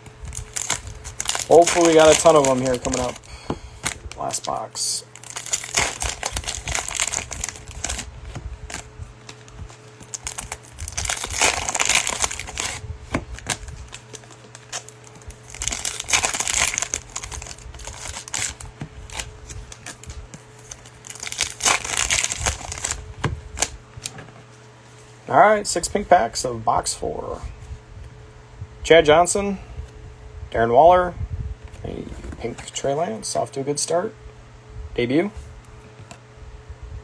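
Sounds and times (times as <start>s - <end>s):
card wrappers tearing and crinkling: 0.2s - 24.1s.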